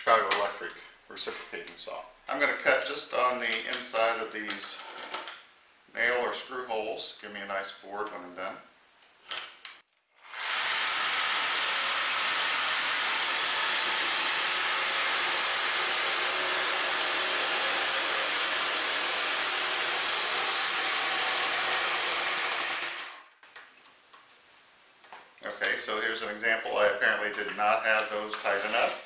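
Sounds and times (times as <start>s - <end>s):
reciprocating saw cutting wood: 10.2s - 23.3s.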